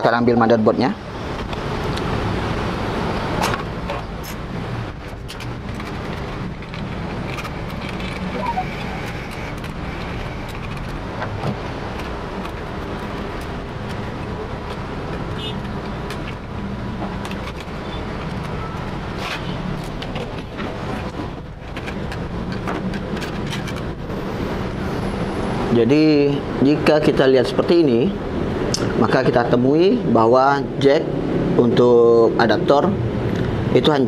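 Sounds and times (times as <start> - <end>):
parts clicking and knocking: 3.4 - 8.4, 9.0 - 24.0.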